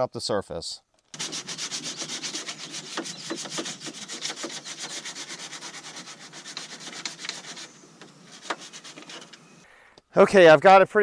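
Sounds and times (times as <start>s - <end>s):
sandpaper scuffing fiberglass: 1.2s - 9.6s.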